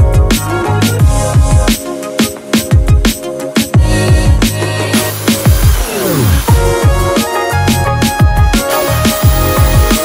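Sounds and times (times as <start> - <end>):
electronic music with drum beat: 0.0 - 10.0.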